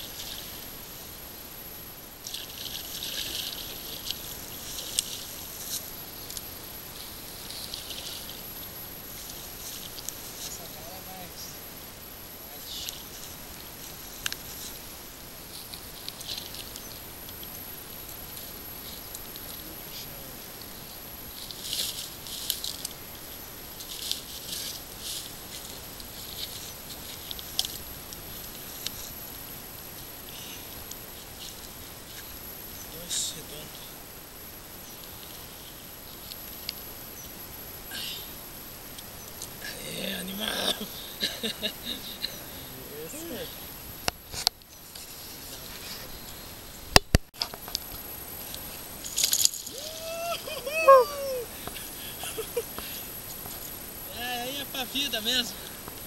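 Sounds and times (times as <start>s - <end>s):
rustling through dry grass: 0.0s - 32.8s, 42.8s - 54.1s
steady background hiss: 0.0s - 56.0s
water splashing: 2.2s - 5.8s.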